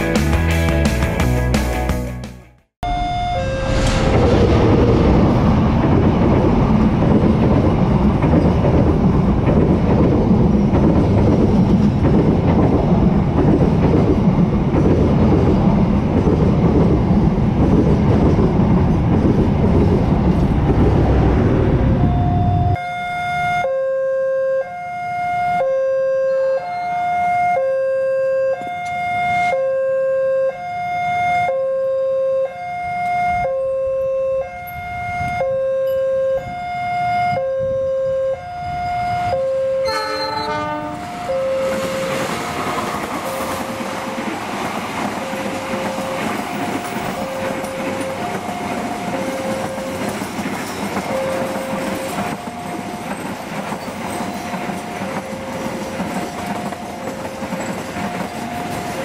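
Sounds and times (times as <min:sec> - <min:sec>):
train running on rails: 0:02.8 - 0:23.5, 0:31.7 - 0:59.0
two-tone level crossing bell: 0:33.6 - 0:36.4, 0:51.0 - 0:53.1.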